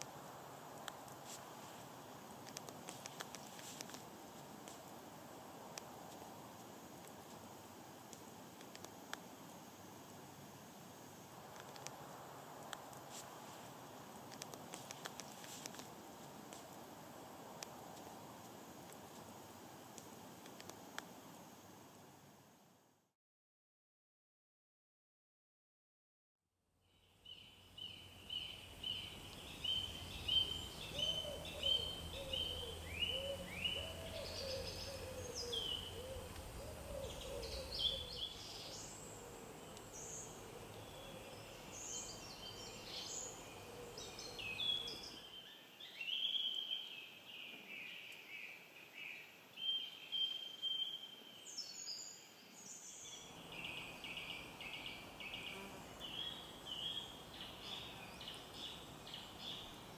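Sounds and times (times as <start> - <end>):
songbirds singing: 26.9 - 59.9
low bird call: 28.0 - 39.5.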